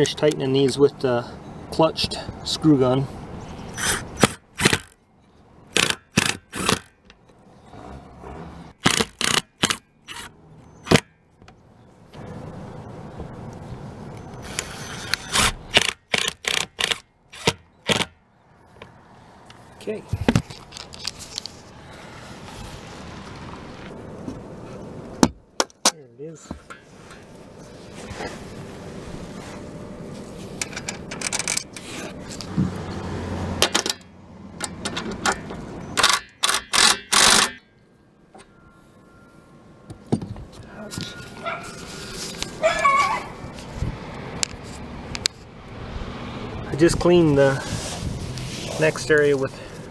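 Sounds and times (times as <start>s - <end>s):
cordless screw gun driving screw: 3.8s - 5.0s, 5.7s - 6.9s, 8.8s - 10.3s, 14.4s - 18.1s, 36.0s - 37.6s
metal clicks and scrapes: 8.8s - 10.3s, 30.5s - 32.5s, 33.6s - 37.6s
loud metal scraping bursts: 14.2s - 18.1s.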